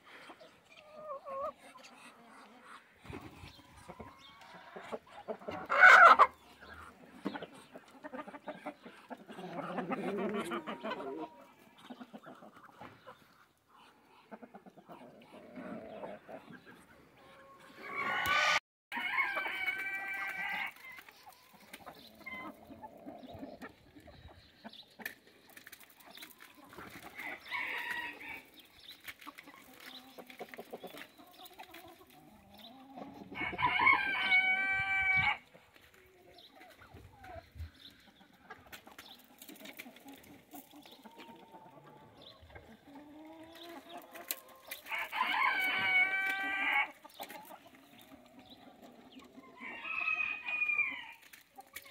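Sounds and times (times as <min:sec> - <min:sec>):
hens clucking: 0:00.0 - 0:51.9
rooster crowing: 0:18.0 - 0:20.5, 0:33.4 - 0:35.4, 0:44.9 - 0:46.8.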